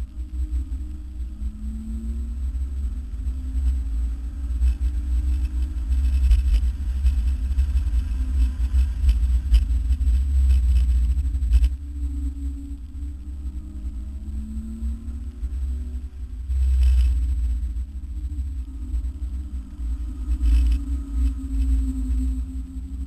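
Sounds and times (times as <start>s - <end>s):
road rumble inside car: 0.0s - 23.0s.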